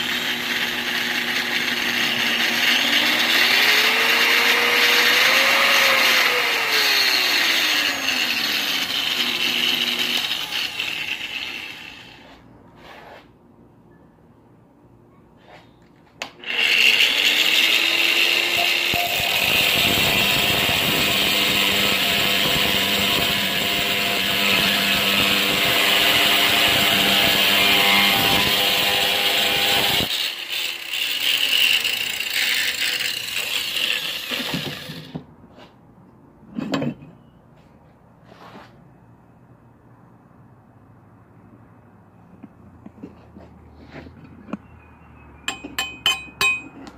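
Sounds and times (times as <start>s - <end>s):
angle grinder cutting metal: 0.0s - 12.4s, 16.4s - 35.1s.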